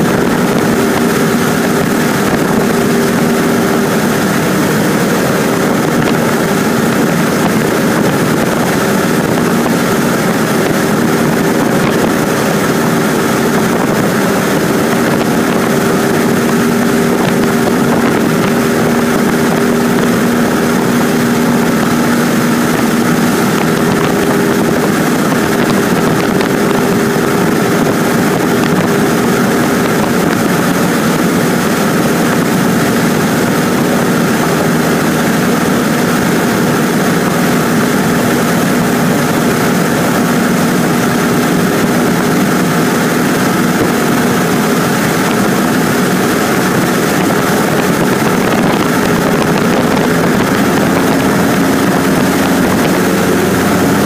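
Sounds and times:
small plane engine droning: 0.0s - 54.0s.

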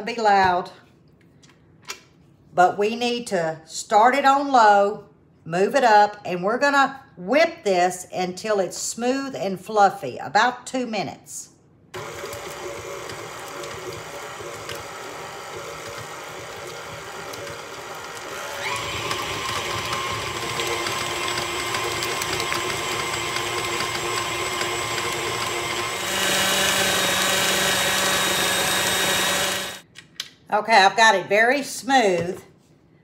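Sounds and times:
stand mixer beating: 12.0s - 29.8s.

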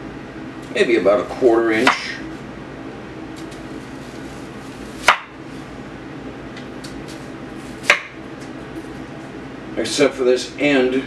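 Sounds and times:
low background hum: 0.0s - 11.0s
knife chopping onion on board: 5.0s - 5.4s, 7.8s - 8.2s.

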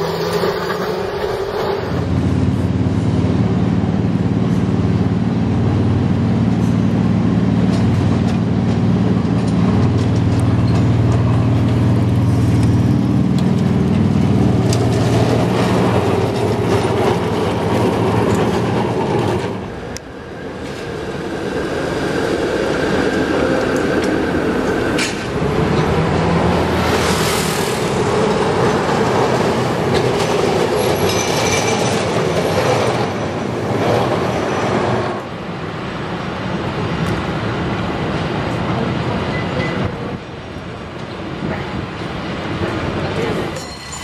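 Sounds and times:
steel wheels squealing on rail: 0.0s - 2.1s, 30.7s - 33.7s, 39.2s - 40.0s, 41.7s - 44.0s
street traffic: 0.0s - 44.0s
streetcar motor humming: 0.0s - 44.0s.

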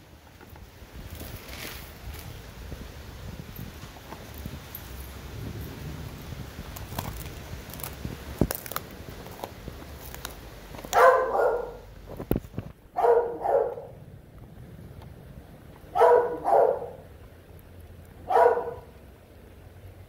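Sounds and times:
dog barking: 10.9s - 11.9s, 13.0s - 14.0s, 15.9s - 17.0s, 18.3s - 18.9s.

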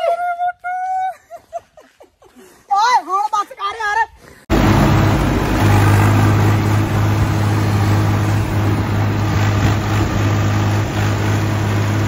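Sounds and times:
diesel tractor engine running: 4.5s - 12.0s.

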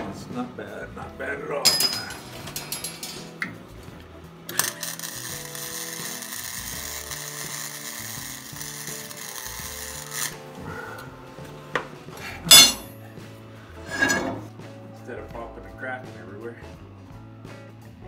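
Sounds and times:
welder arc hissing: 4.5s - 10.5s.

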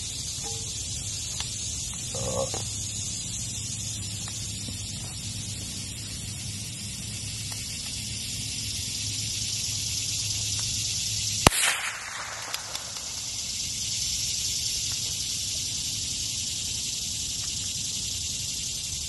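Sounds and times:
rifle shot with echo: 11.4s - 13.2s
faint clicks: 12.2s - 13.3s.

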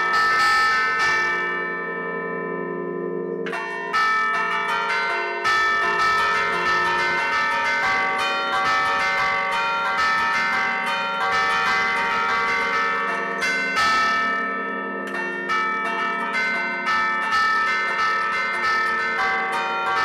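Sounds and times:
church bells ringing a tune: 0.0s - 20.0s.

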